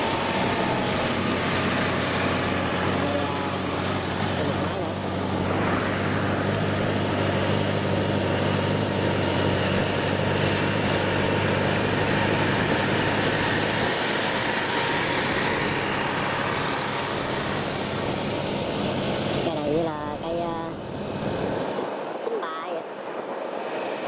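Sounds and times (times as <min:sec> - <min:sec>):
diesel engine driving past: 0:00.0 - 0:21.8.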